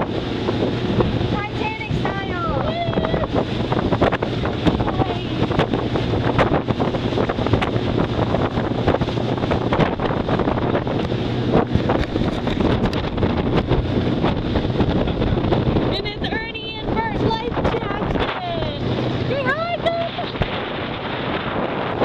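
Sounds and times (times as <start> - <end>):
motorboat engine hum: 0.0 - 22.0
wind buffeting microphone: 0.0 - 22.0.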